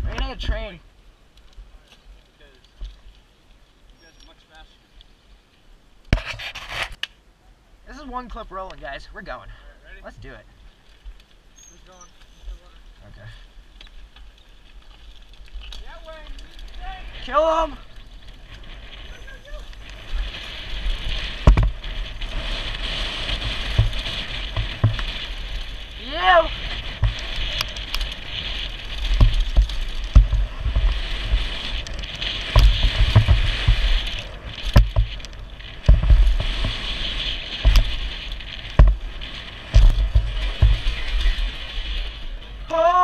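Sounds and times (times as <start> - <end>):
wind and tyre rush: 10.3 - 43.0
bike thumps and rattles: 19.8 - 41.6
person yelling: 26.0 - 26.6, 42.7 - 43.0.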